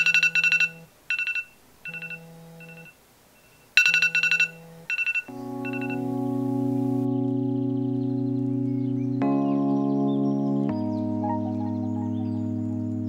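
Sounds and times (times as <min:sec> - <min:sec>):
phone alarm beeping: 0:00.0 - 0:07.0
low bell-like musical tone: 0:03.9 - 0:11.5.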